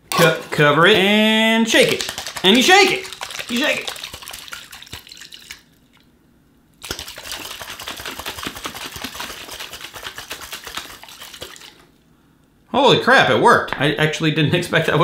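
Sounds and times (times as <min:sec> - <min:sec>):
egg and water shaken in glass jar: 0:01.7 - 0:06.0, 0:06.8 - 0:11.9.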